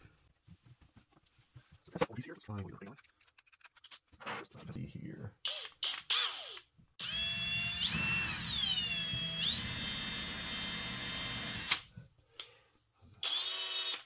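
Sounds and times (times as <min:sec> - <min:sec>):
cordless drill motor whine: 0:05.5 - 0:11.8, 0:13.2 - 0:14.0.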